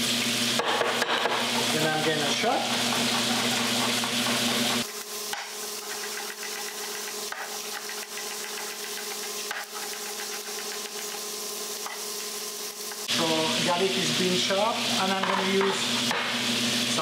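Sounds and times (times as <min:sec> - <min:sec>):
knife chopping on wooden board: 0:00.6 - 0:01.7, 0:02.6 - 0:11.0.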